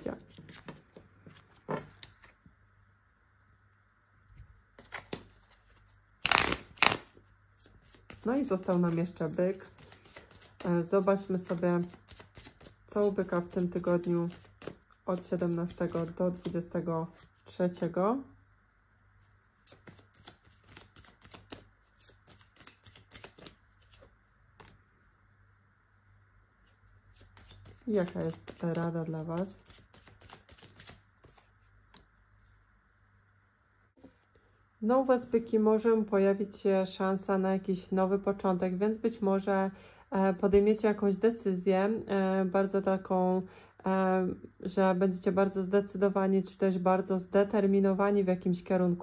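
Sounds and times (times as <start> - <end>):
deck of cards shuffling: 4.7 - 17.9, 19.2 - 24.9, 26.6 - 32.6.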